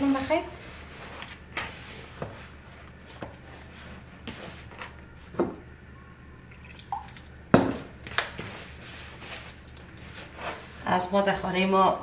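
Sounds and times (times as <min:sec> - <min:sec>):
hands squishing wet dough: 0:08.0 - 0:10.4.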